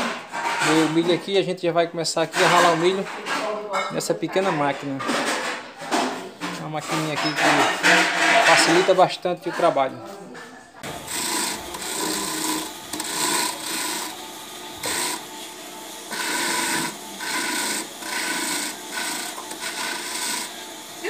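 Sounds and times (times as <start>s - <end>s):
corn rasping on grater drum: 0.3s - 1.2s, 2.3s - 3.2s, 7.0s - 8.9s, 10.8s - 21.0s
small motor whirring: 10.8s - 21.0s.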